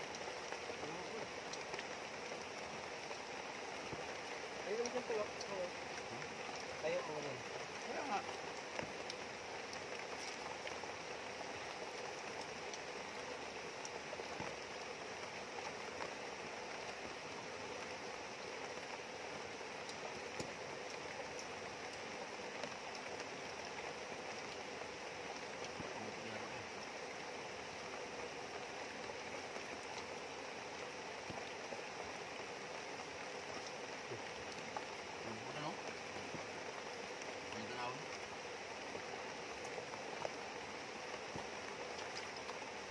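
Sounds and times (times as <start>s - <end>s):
river rushing: 0.0s - 42.9s
steady rain falling: 0.0s - 42.9s.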